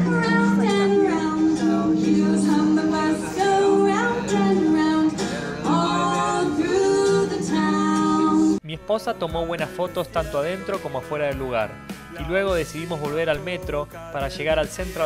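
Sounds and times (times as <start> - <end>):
women singing: 0.0 - 8.6.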